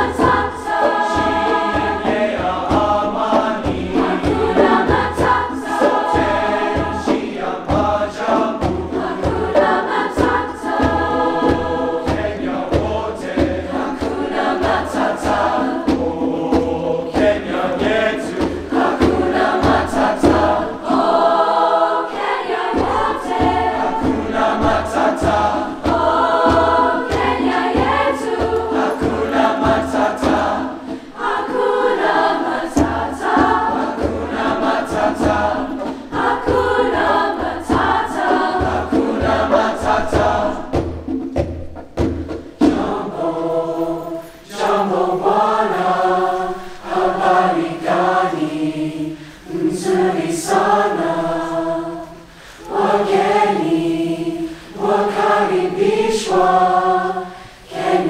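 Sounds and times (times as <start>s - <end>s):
hand drum beat: 0.0s - 45.8s
choir singing in parts: 0.0s - 58.0s.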